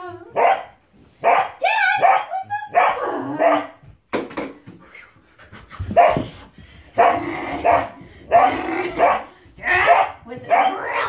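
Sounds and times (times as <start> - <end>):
puppy barking: 0.3 - 3.8, 7.0 - 11.0.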